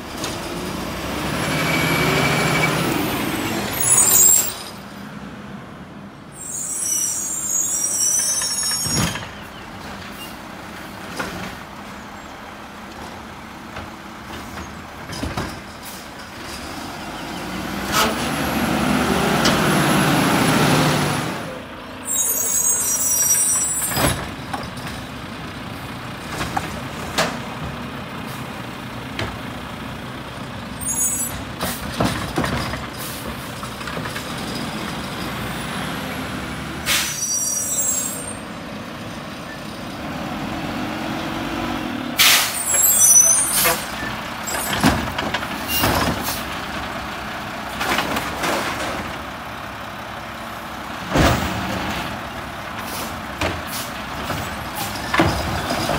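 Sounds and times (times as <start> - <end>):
air brakes hissing: 36.8 - 38.4, 42.2 - 44.0, 52.8 - 54.0
diesel truck engine running: 38.4 - 55.9.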